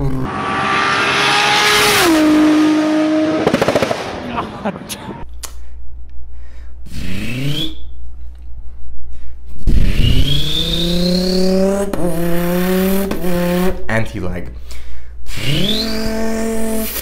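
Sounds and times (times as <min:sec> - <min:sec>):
mouth imitation of engine revving: 0:00.0 - 0:04.5, 0:06.8 - 0:07.9, 0:09.6 - 0:13.9, 0:15.2 - 0:17.0.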